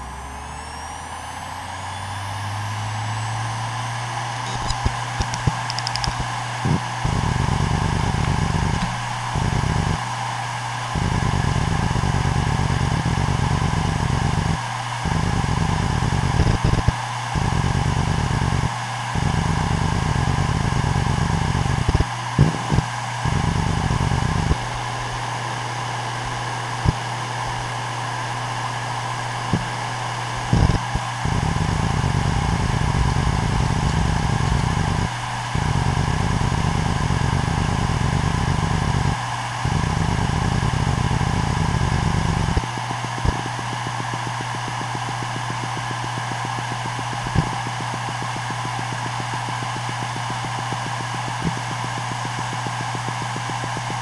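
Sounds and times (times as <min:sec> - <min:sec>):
hard drive low rumble: 0:00.0 - 0:10.2, 0:10.8 - 0:54.0
hard drive spindle hum: 0:00.0 - 0:54.0
hard drive head clicks: 0:04.5 - 0:06.3.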